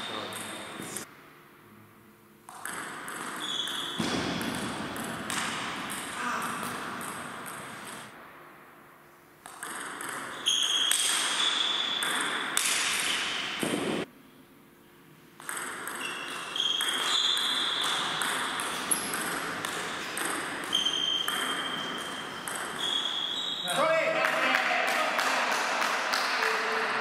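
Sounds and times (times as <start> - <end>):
table tennis ball clicking: 9.4 - 11.2, 15.4 - 22.8.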